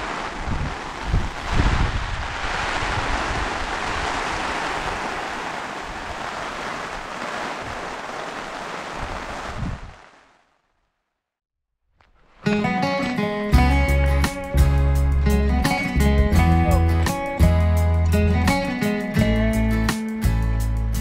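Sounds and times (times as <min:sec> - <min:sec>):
wind gusts buffeting microphone: 0:00.0 - 0:10.2
wind noise: 0:00.0 - 0:10.4.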